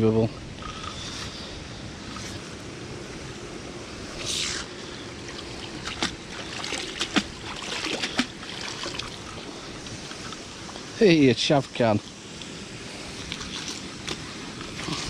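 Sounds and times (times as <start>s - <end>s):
water splashing and running off: 5.2s - 15.0s.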